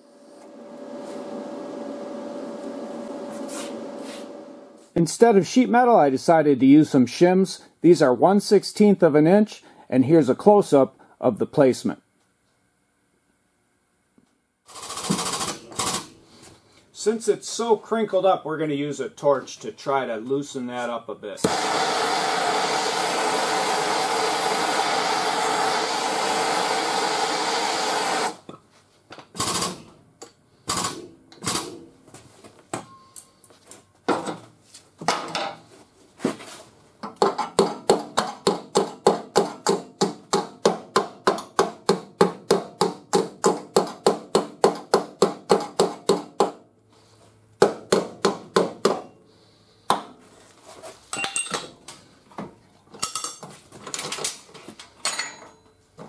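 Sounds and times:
propane torch flame hissing: 21.5s - 28.4s.

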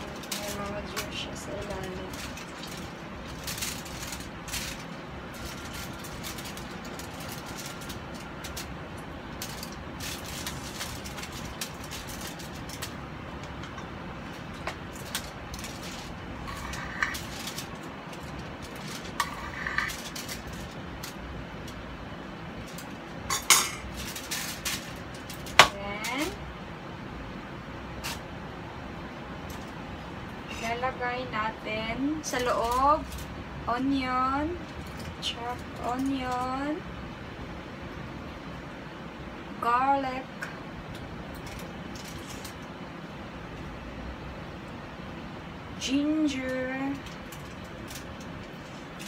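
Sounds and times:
aluminium foil rustling and crinkling: 0.0s - 26.6s, 27.6s - 36.9s, 40.4s - 49.0s
steady background noise: 0.0s - 49.0s.

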